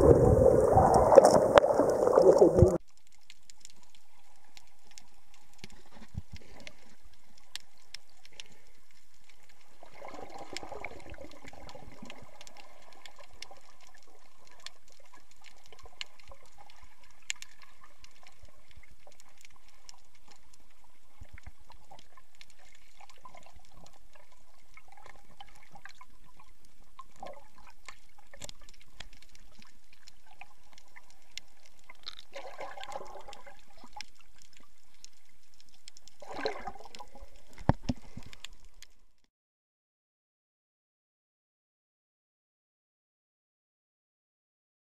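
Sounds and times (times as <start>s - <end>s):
bubbling gurgles: 0.0s - 2.8s, 9.7s - 18.0s, 31.9s - 34.6s, 36.2s - 38.3s
muffled underwater wash: 0.0s - 39.2s
small underwater clicks: 0.0s - 39.3s.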